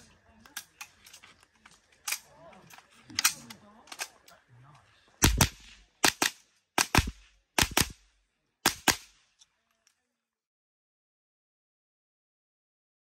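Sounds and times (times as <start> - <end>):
rifle shots cracking: 5.2 - 9.2.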